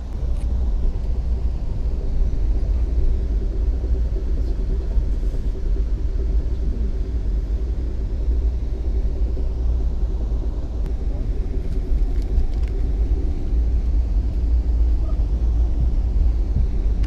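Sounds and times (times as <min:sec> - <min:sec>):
faint steady hum: 0:00.0 - 0:17.0
low rumble of moving train: 0:00.0 - 0:17.0.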